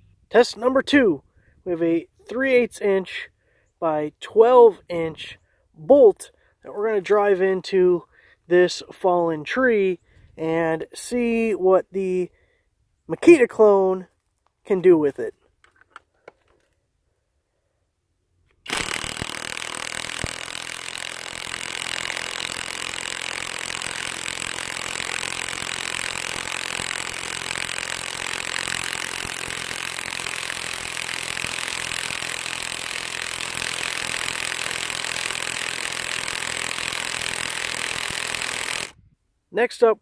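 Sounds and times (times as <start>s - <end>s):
impact wrench hammering: 18.7s - 39.0s.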